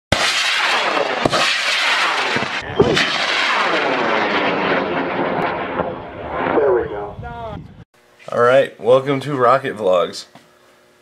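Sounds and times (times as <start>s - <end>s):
sharp cracks: 0.1s - 6.6s
rocket motor roaring: 0.2s - 7.8s.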